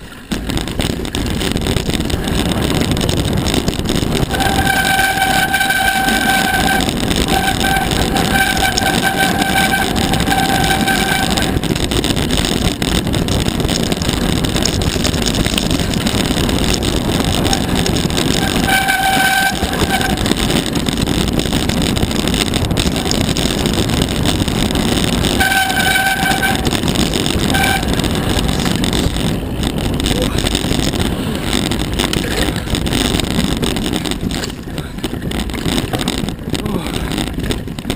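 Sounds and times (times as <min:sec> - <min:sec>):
bike tyre and frame rattle: 0:00.0 - 0:37.9
high steady whine: 0:00.0 - 0:37.9
wind rushing on microphone: 0:00.0 - 0:37.9.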